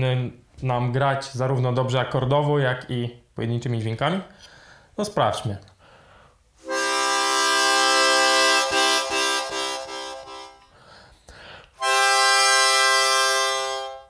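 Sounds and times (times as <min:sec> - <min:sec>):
short breath: 0:04.3 - 0:05.0, 0:05.8 - 0:06.4, 0:10.6 - 0:11.8
harmonica chord: 0:06.6 - 0:11.1, 0:11.8 - 0:14.0.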